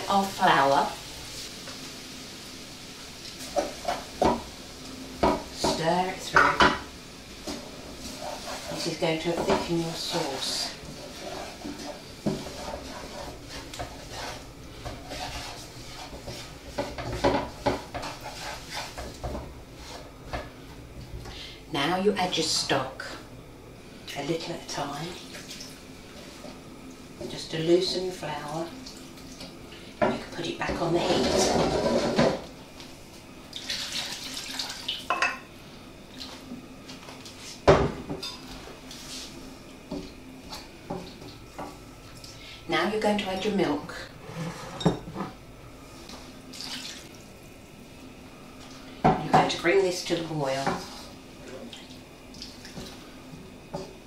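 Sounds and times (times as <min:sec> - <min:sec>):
wooden spoon scraping frying pan: 0:03.3 - 0:04.5, 0:05.2 - 0:20.5, 0:30.7 - 0:32.4, 0:44.2 - 0:45.4, 0:50.5 - 0:51.2.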